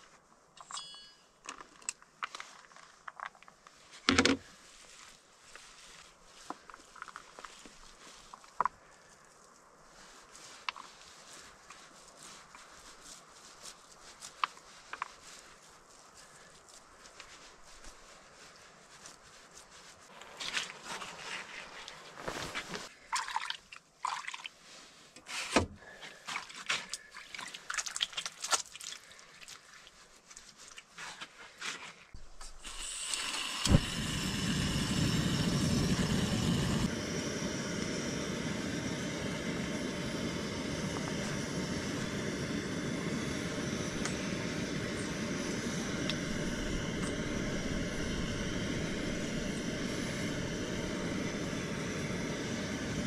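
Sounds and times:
gas burner hissing: 32.4 - 53.0.

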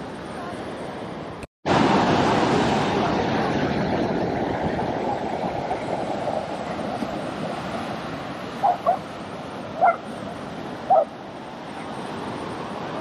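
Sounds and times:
beach surf: 0.0 - 13.0
dog barking: 8.6 - 9.0, 9.8 - 10.1, 10.9 - 11.1.

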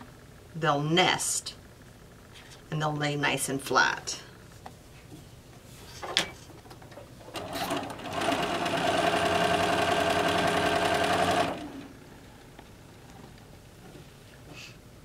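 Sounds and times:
sewing machine stitching: 7.3 - 11.9.

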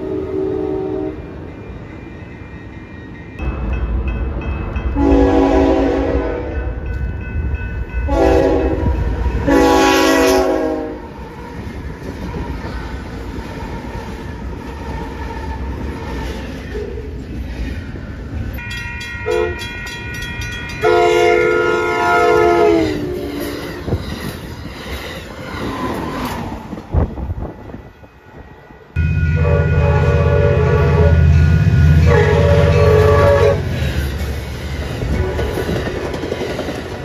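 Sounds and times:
train air horn blasts: 0.0 - 1.2, 5.0 - 6.8, 8.1 - 11.1, 19.2 - 19.6, 20.8 - 23.6, 29.0 - 33.8, 35.1 - 35.7
moving train rumble: 0.0 - 37.0.

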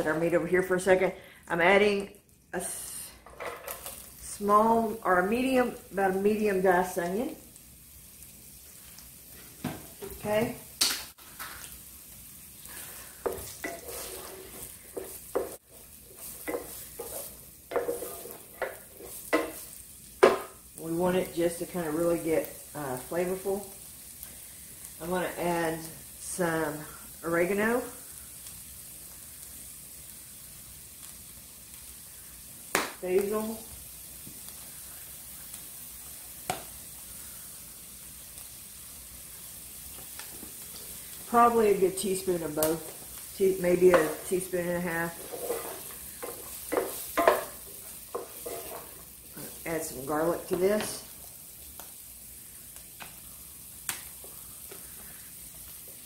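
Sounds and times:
onion sizzling in a frying pan: 0.0 - 56.0
wooden spoon scraping a pan: 12.6 - 20.6, 40.2 - 51.1.

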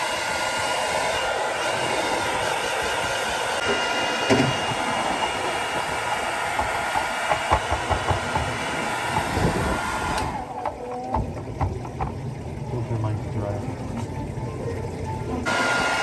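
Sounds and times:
hair dryer blowing: 0.0 - 11.2, 15.4 - 16.0.

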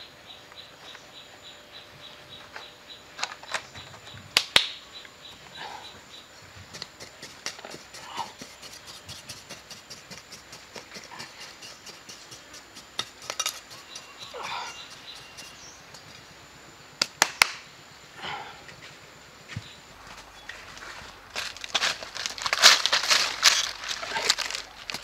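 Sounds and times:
hands scraping sandy soil: 6.6 - 16.0.

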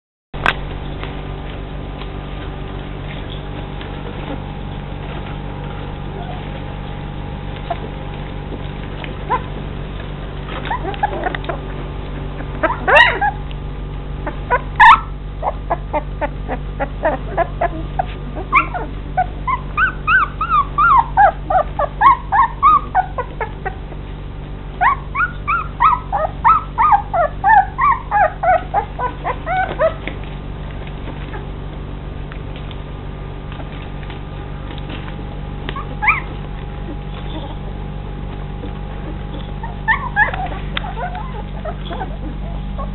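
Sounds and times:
puppies whimpering and squeaking: 3.1 - 24.1, 24.7 - 31.5, 33.6 - 42.9
puppy yelps: 9.2 - 9.6, 10.5 - 13.5, 14.2 - 23.9, 24.8 - 30.1, 35.7 - 37.6, 39.0 - 42.9.

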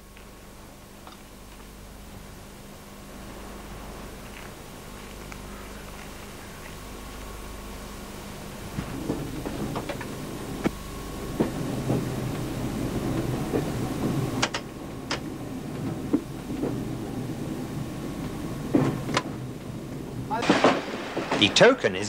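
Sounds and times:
train rumbling slowly: 0.0 - 22.0
train wheels clunking and clicking: 8.1 - 22.0.

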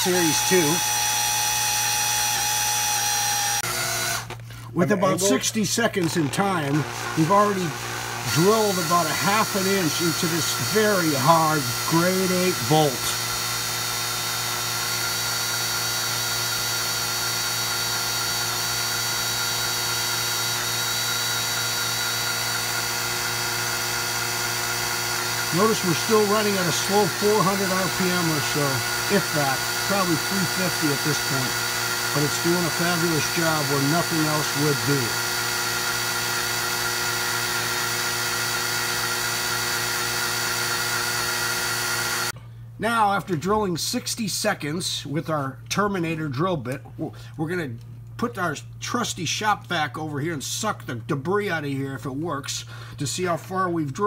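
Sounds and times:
drill drilling into metal: 0.0 - 4.4, 5.0 - 42.4.

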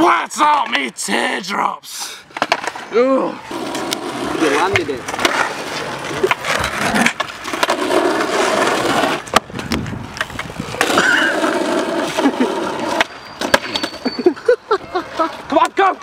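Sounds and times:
skateboard wheels rolling on concrete: 0.0 - 16.0
skateboard deck clacking on ground: 2.4 - 2.8, 3.7 - 14.0.

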